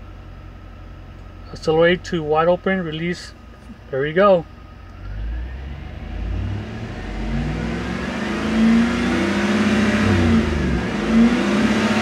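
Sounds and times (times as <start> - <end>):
car engine revving: 4.9 - 12.0.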